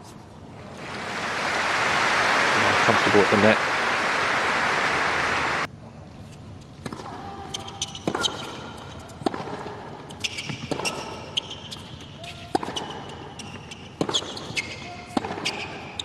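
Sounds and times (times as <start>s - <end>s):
crowd applause: 0.8s - 5.7s
tennis ball bouncing and struck: 6.8s - 15.8s.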